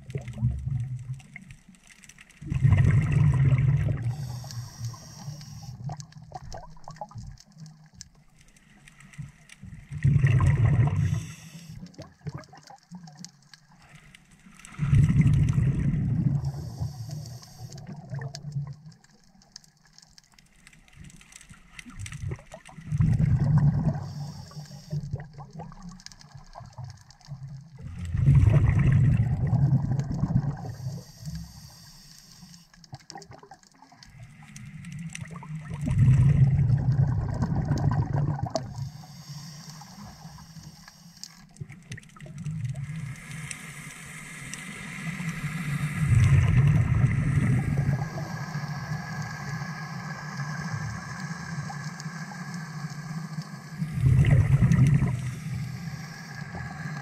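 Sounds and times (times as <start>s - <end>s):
diver exhaling bubbles: 2.4s - 5.1s, 9.9s - 12.5s, 14.8s - 17.0s, 22.2s - 25.7s, 27.8s - 31.3s, 35.2s - 38.8s, 45.8s - 51.0s, 53.7s - 57.0s
regulator inhale hiss: 4.0s - 5.8s, 10.8s - 11.9s, 16.3s - 17.9s, 23.9s - 25.1s, 30.6s - 32.8s, 38.6s - 41.5s, 42.9s - 57.0s.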